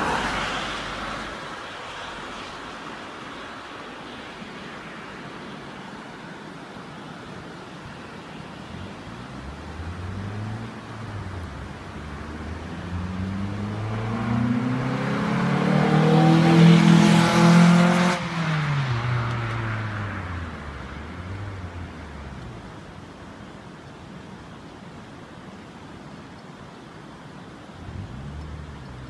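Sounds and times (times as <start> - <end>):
car accelerating past: 9.2 - 22.4.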